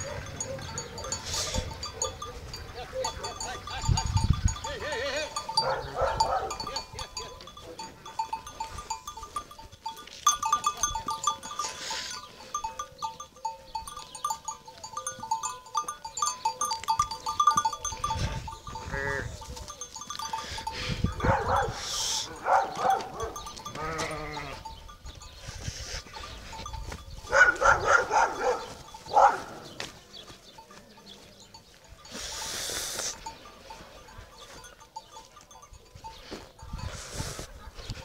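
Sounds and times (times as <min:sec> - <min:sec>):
sheep bells clinking: 0:00.0 - 0:38.0
sheep bleating: 0:18.8 - 0:19.4, 0:23.6 - 0:24.7.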